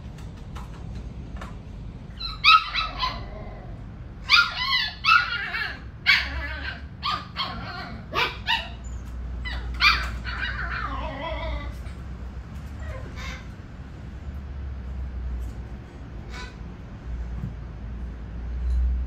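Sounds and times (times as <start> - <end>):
puppies yipping and barking: 2.1 - 13.6.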